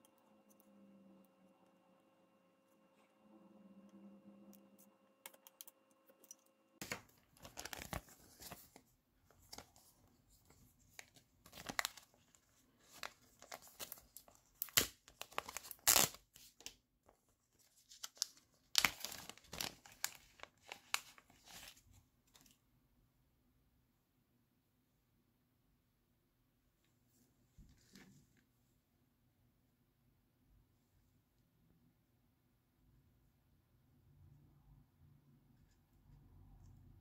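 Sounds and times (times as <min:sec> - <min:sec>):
plastic bag crinkling: 0:06.8 - 0:08.8, 0:11.0 - 0:16.2, 0:18.0 - 0:21.8.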